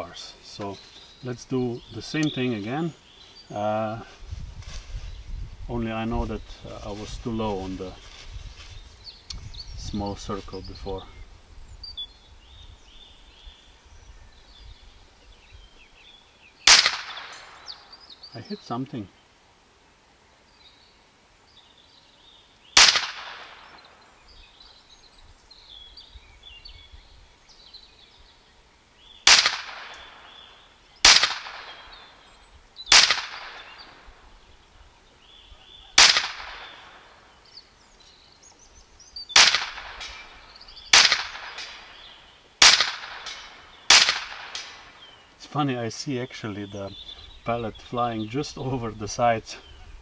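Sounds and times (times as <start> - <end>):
air pistol shots: 16.7 - 17.6, 22.8 - 23.8, 29.2 - 30.4, 31.0 - 31.9, 32.9 - 33.8, 36.0 - 37.0, 39.4 - 40.3, 40.9 - 42.0, 42.6 - 44.9.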